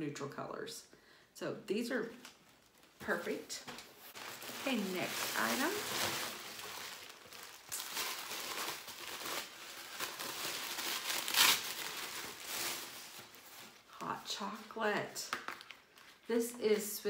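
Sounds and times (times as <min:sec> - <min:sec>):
tissue paper rustling and crinkling: 0:02.2 - 0:14.8, 0:15.5 - 0:16.8.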